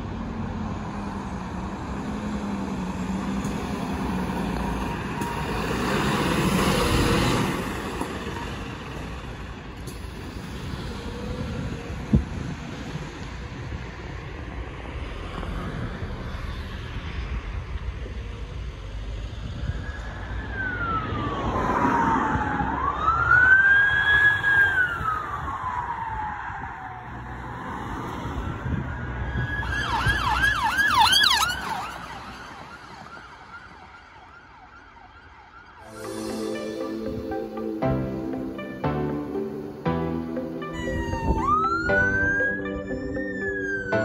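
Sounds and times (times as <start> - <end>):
traffic noise: 0.0 - 44.0
emergency vehicle siren: 1.7 - 13.8, 19.2 - 44.0.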